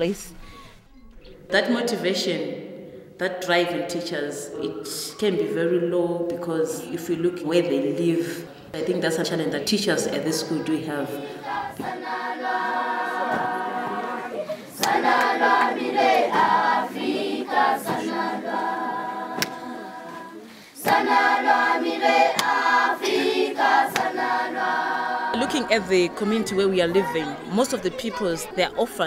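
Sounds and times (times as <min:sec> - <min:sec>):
children singing in chorus: 0:11.0 - 0:28.1.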